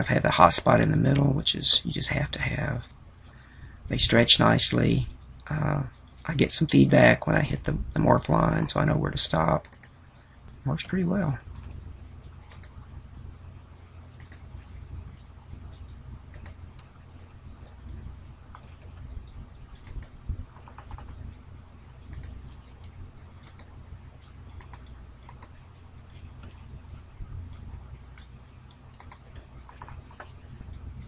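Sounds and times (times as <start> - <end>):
low steady hum: 0.0 - 31.0
computer mouse clicking: 9.6 - 10.0, 10.8 - 11.8, 12.5 - 12.8, 14.2 - 17.9, 18.5 - 19.1, 19.7 - 21.4, 22.0 - 30.4.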